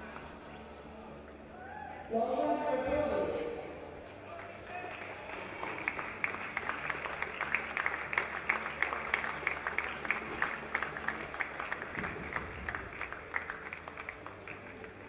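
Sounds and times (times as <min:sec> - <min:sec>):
audience applauding: 0:04.4 - 0:15.0.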